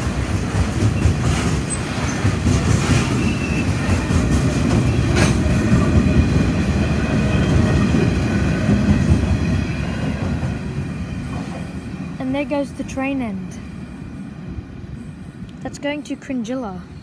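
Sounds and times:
train wheels rumbling on rails: 0.0s - 17.0s.

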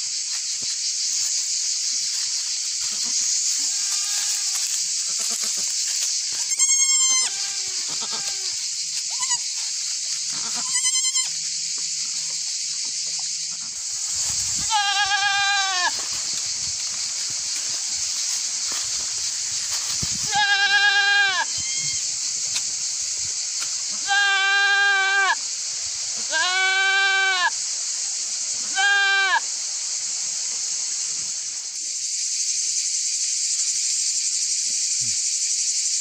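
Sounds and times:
steady high-pitched hiss: 0.0s - 36.0s
goat kids bleating: 5.1s - 5.6s, 6.5s - 9.4s, 10.3s - 11.3s, 14.6s - 16.0s, 20.3s - 22.0s, 23.9s - 25.4s, 26.2s - 27.5s, 28.6s - 29.4s.

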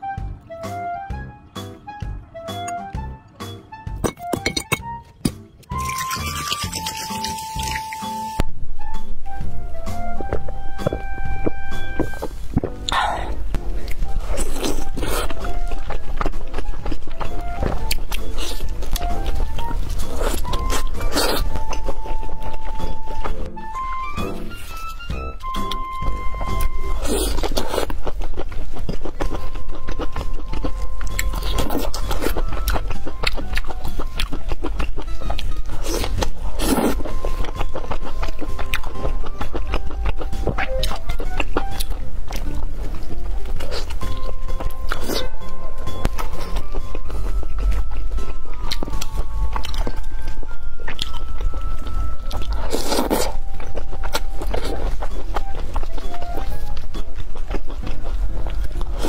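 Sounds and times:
wet chewing mouth clicks: 25.5s - 59.0s.

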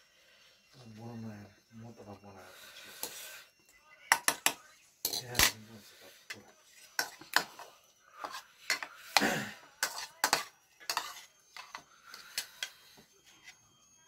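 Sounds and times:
cutlery clinking against bowl: 4.1s - 5.6s, 7.0s - 12.8s.

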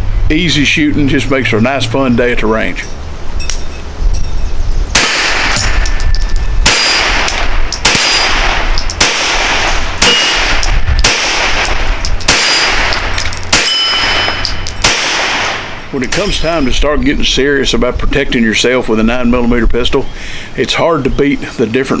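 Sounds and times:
pistol shots: 5.0s - 6.0s, 6.6s - 16.3s.

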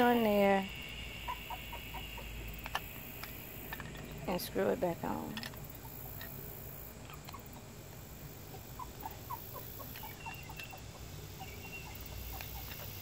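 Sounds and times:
puppy whimpering: 8.5s - 10.8s.

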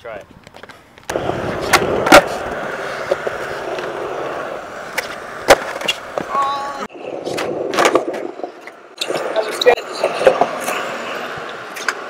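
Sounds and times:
skateboard wheels rolling on concrete: 0.0s - 12.0s
skateboard clacks: 1.0s - 12.0s
skateboard tail pop: 1.1s - 4.0s, 4.9s - 6.4s.

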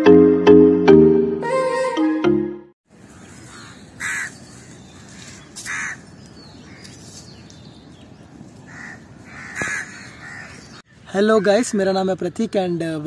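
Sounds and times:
crows cawing: 3.0s - 7.0s, 8.6s - 11.8s.

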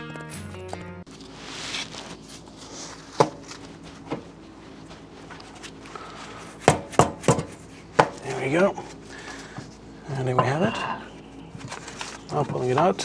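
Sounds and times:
sharp knocks on metal: 6.7s - 8.2s.

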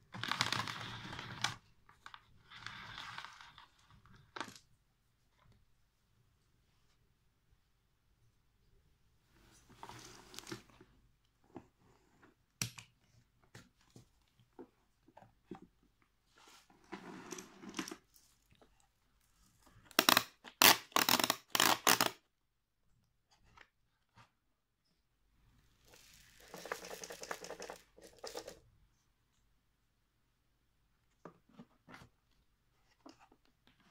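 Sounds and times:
sharp plastic clacks: 19.9s - 22.2s.

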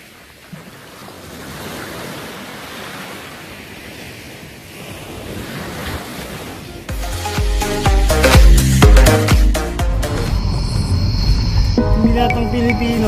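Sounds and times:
small waves breaking on beach: 0.0s - 6.9s.

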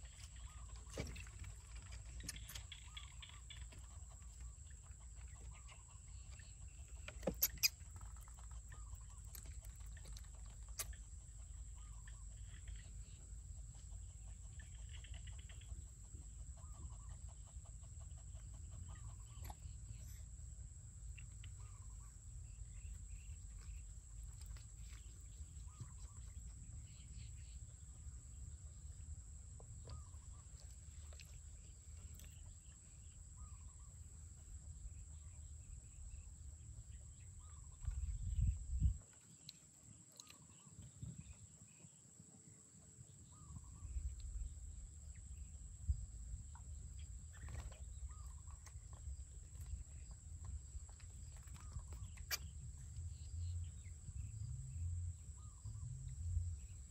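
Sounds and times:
animal clucking calls: 0.0s - 12.9s, 13.6s - 20.2s.

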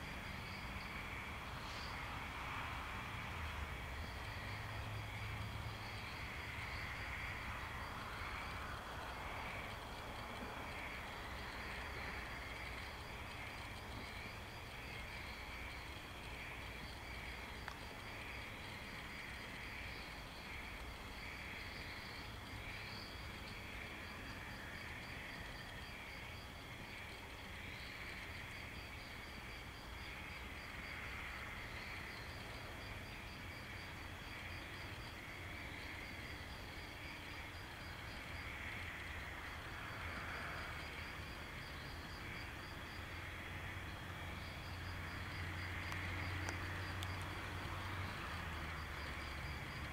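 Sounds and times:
insects chirping: 0.0s - 49.9s.

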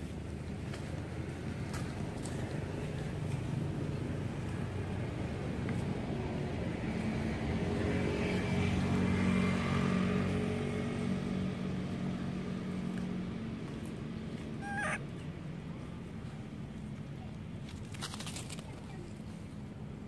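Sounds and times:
vehicle engine passing: 6.5s - 16.0s.

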